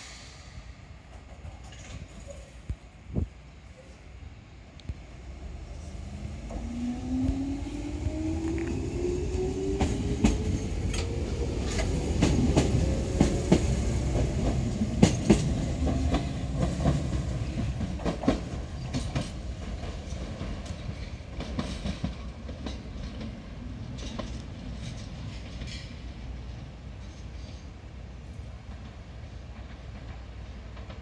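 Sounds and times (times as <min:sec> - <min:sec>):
wheels clicking over rail joints: 0:01.1 - 0:02.6, 0:09.8 - 0:26.2.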